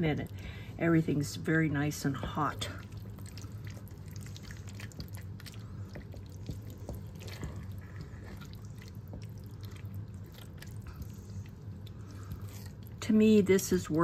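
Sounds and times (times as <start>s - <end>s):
low hum: 0.0s - 14.0s
sauce squelching while stirred: 1.8s - 13.0s.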